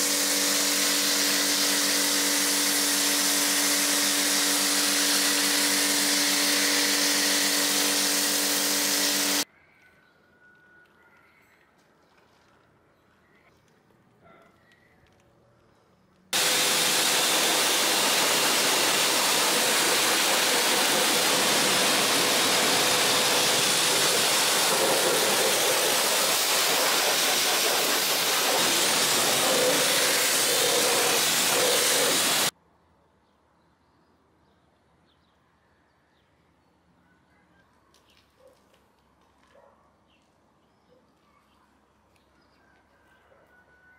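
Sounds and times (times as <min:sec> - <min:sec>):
pressure washer spraying water: 0:00.0 - 0:09.4, 0:16.4 - 0:32.5.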